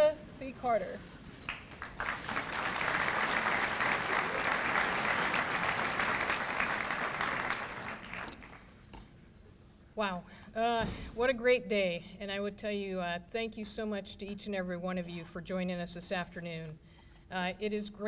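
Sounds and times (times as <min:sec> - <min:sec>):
audience applauding: 0:01.4 - 0:08.7.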